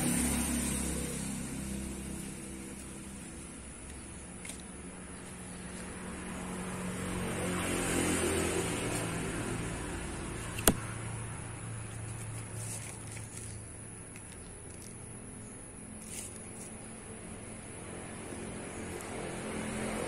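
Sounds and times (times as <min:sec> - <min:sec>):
road vehicle passing: 0:00.0 - 0:13.1, 0:15.1 - 0:20.0.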